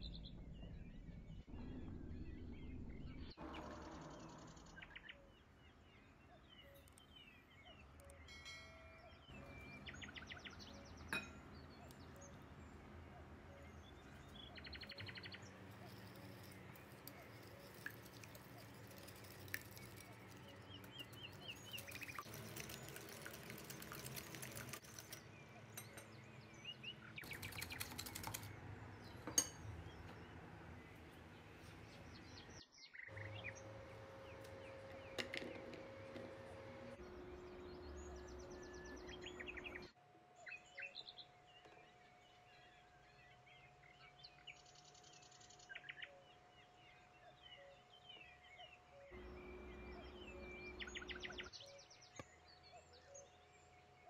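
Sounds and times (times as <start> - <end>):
whisk beating in glass bowl: 15.8 - 25.2.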